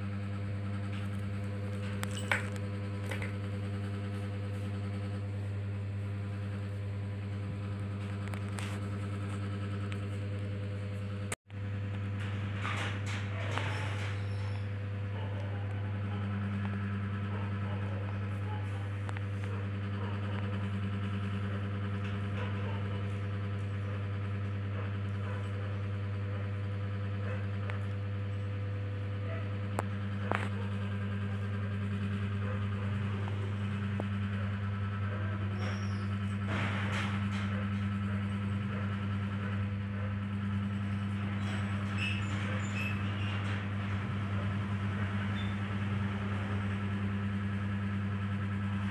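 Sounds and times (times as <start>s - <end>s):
steady low hum: 0.0s - 48.9s.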